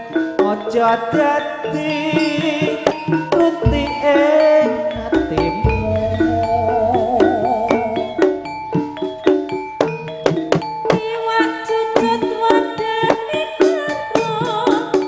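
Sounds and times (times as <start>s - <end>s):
metallophones and drums over loudspeakers: 0.0s - 15.0s
person singing wavering notes: 0.7s - 8.7s
deep drum thumps: 5.0s - 8.2s.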